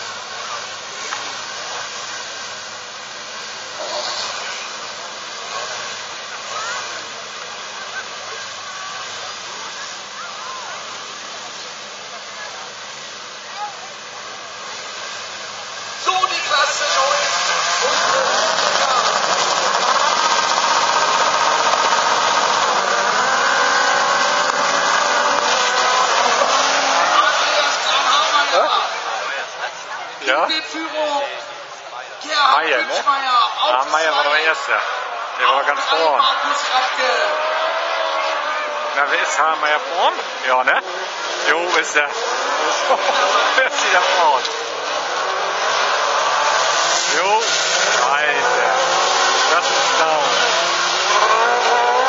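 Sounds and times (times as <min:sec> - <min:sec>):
racing buggy engines rushing: 0:00.0 - 0:52.0.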